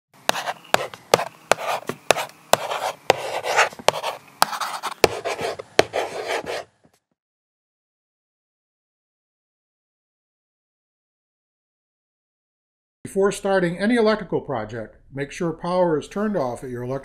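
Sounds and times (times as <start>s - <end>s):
marker tip tapping: 0.3s - 6.6s
marker scratching on paper: 0.3s - 6.8s.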